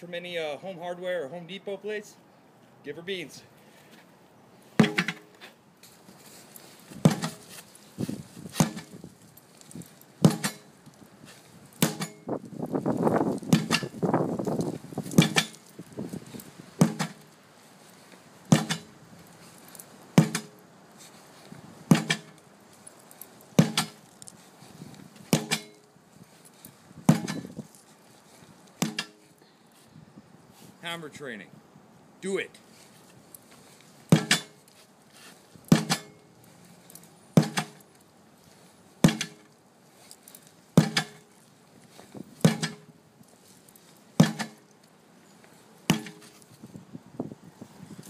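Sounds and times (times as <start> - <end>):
sledgehammer striking tire: 4.8 - 5.3, 7.0 - 7.6, 8.5 - 9.0, 10.2 - 10.7, 11.8 - 12.4, 13.4 - 14.2, 15.0 - 15.7, 16.8 - 17.3, 18.5 - 19.0, 20.2 - 20.6, 21.9 - 22.4, 23.6 - 24.0, 25.3 - 25.9, 27.1 - 27.6, 28.8 - 29.4, 34.1 - 34.6, 35.7 - 36.3, 37.4 - 37.9, 39.0 - 39.5, 40.8 - 41.3, 42.4 - 43.0, 44.2 - 44.7, 45.9 - 46.4.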